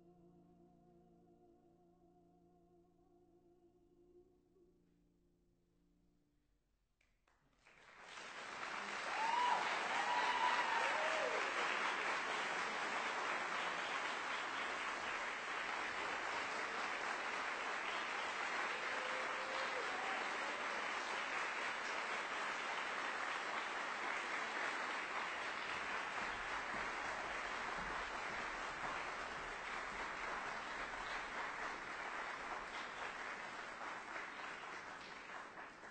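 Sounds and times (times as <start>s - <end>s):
audience applauding: 7.5s - 35.9s
short calls from audience: 8.4s - 35.6s.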